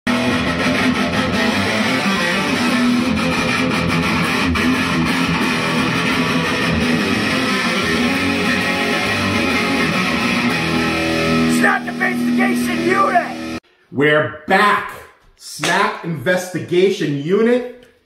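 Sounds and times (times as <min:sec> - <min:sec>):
electric guitar strumming: 0:00.1 - 0:13.6.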